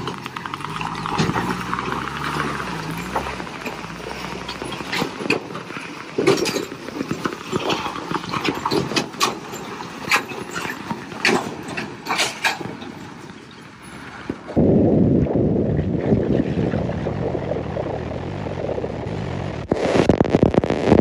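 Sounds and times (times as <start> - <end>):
trailer wheels knocking and clanking: 0.0 - 14.6
truck rumbling: 0.0 - 21.0.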